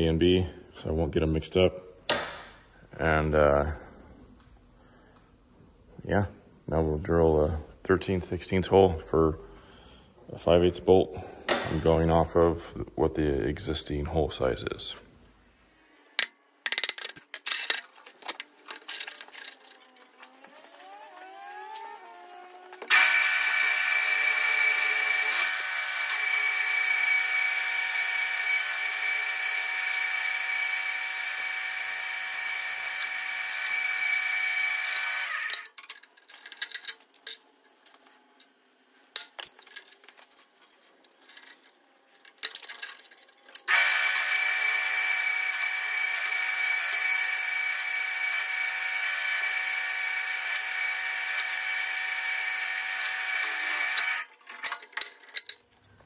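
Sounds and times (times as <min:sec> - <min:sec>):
drill press whine: 0:18.7 - 0:35.7, 0:43.6 - 0:54.3.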